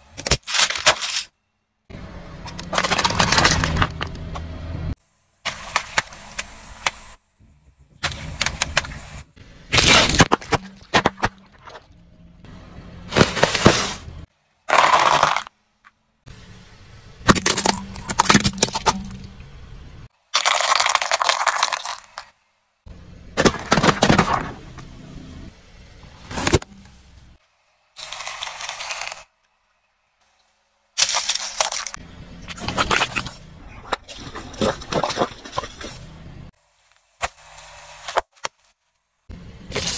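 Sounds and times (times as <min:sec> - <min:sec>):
car tyre crushing brittle objects: 0:00.1 - 0:01.4, 0:02.4 - 0:04.4, 0:09.7 - 0:12.0, 0:14.6 - 0:16.0, 0:17.2 - 0:19.3, 0:20.1 - 0:22.4, 0:23.2 - 0:24.8, 0:27.9 - 0:29.5, 0:31.0 - 0:39.9.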